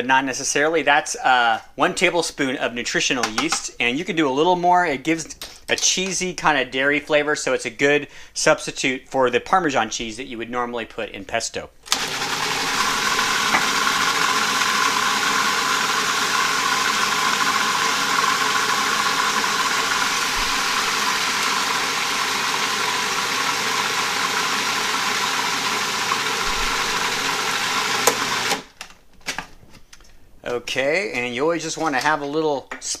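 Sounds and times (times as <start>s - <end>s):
food processor blending: 11.9s - 28.8s.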